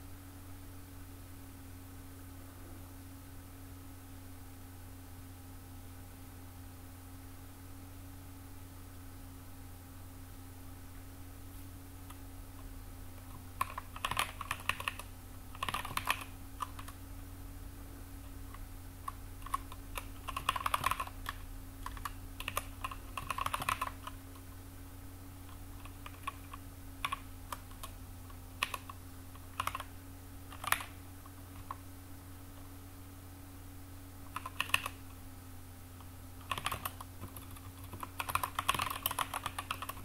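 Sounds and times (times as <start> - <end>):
steady low hum: 0.0 - 40.0
typing on computer keyboard: 13.2 - 17.0, 18.5 - 24.5, 25.5 - 29.9, 30.5 - 31.8, 34.3 - 35.0, 36.4 - 40.0.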